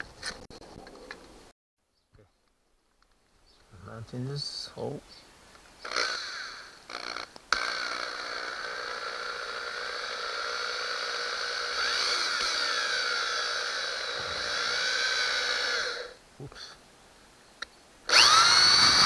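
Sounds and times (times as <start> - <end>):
electric drill whine: 5.8 - 16.2, 18.1 - 19.0.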